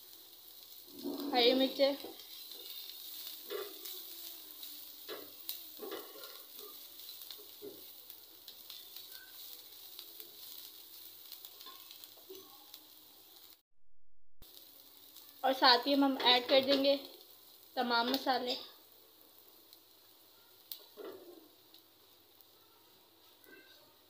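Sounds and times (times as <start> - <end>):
vegetables sizzling in oil: 0.0 - 13.6, 14.4 - 24.0
spatula scraping and tapping pan: 2.0 - 4.0, 5.0 - 7.9.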